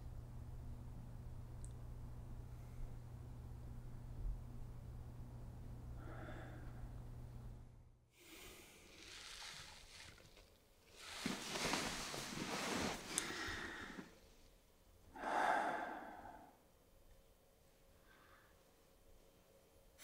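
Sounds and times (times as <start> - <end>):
steady low hum: 0.0 - 9.0
person breathing out heavily: 6.0 - 6.9, 13.1 - 14.2, 15.1 - 16.6.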